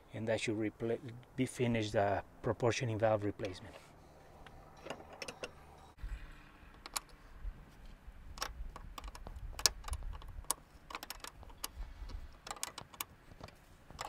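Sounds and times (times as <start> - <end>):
wrench clicking on metal nuts: 8.4 - 13.1.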